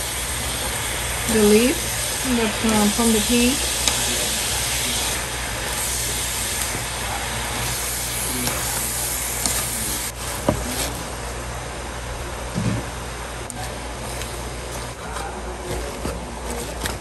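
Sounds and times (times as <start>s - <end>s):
vegetables sizzling in oil: 0.0s - 11.2s
steady low hum: 0.0s - 17.0s.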